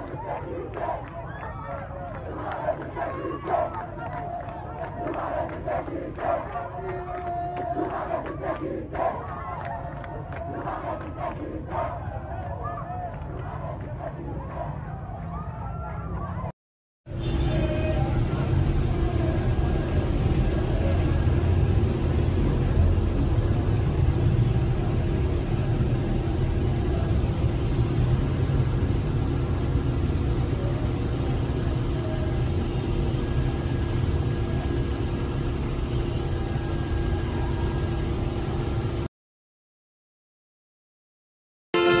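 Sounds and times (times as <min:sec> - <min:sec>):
motorcycles passing: 0:17.1 - 0:38.8
vehicle engine rumble: 0:17.1 - 0:39.1.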